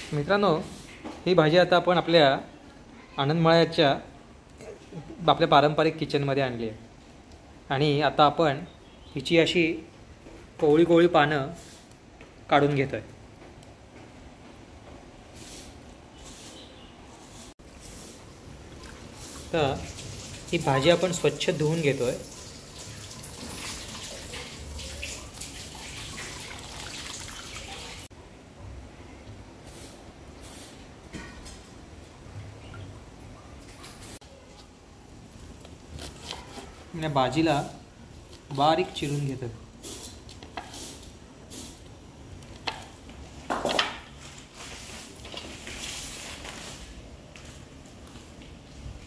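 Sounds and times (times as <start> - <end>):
water splashing in a metal bowl: 18.5 - 28.1
leaves rustling into metal bowl: 44.1 - 47.0.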